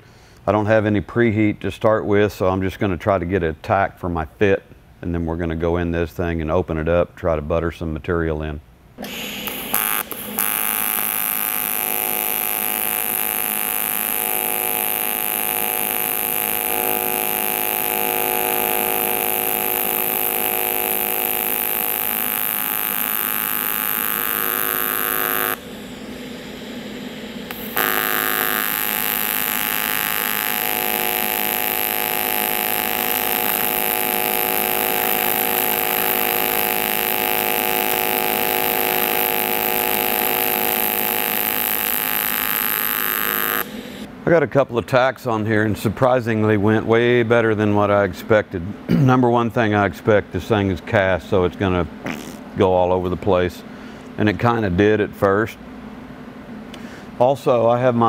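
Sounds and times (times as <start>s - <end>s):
welding arc buzzing: 9.0s - 44.1s, 52.0s - 52.5s.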